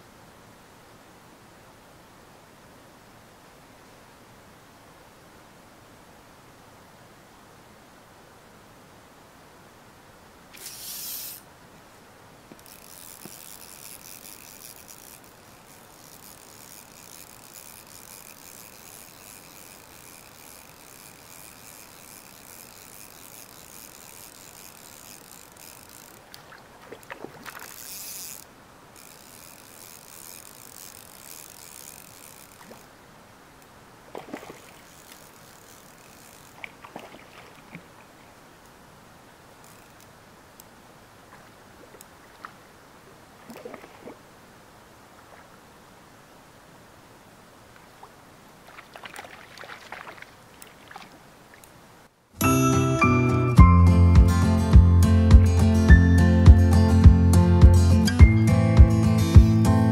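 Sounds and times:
fishing reel drag ratcheting: 10.5s - 11.5s, 12.5s - 32.9s, 34.2s - 37.6s, 39.6s - 40.1s.

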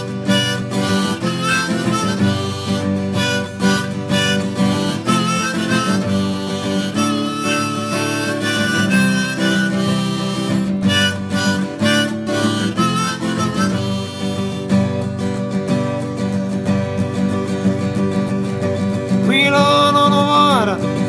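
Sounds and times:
harmonica playing wavering melody: 0.0s - 16.3s
strummed acoustic guitar: 0.0s - 21.0s.

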